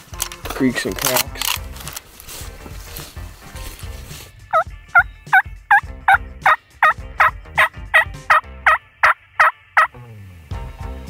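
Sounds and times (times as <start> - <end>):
turkey call yelps: 4.5 - 5.4, 6.1 - 9.9.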